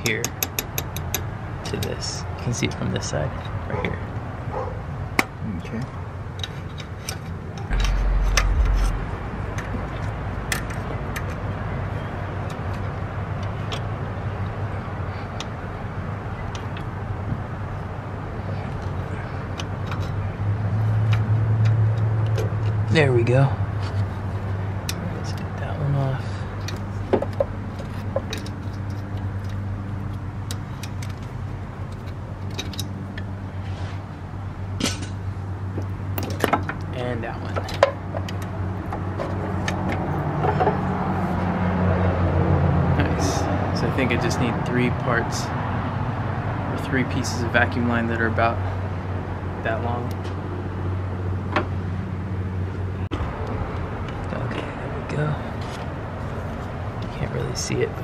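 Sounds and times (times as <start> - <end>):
steady low hum: 7.5 - 11.0
heavy low rumble: 7.6 - 10.6.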